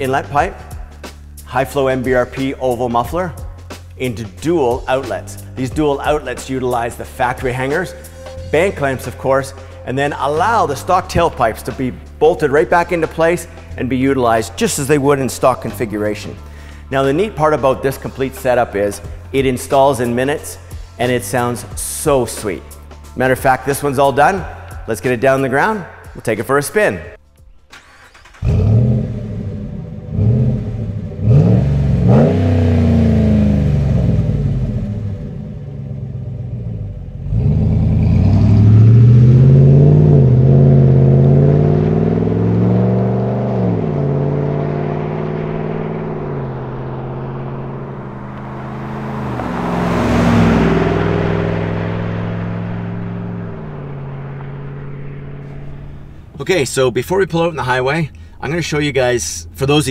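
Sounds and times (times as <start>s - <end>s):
engine revving and accelerating: 28.1s - 56.3s.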